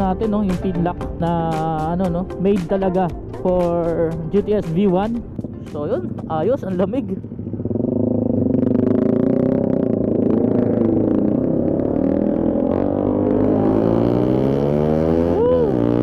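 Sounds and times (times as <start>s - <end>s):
scooter engine running: 4.0s - 16.0s.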